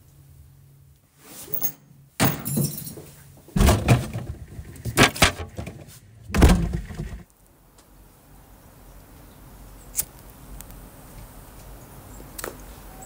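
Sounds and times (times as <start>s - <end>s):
heavy knocks: 3.6s - 7.2s.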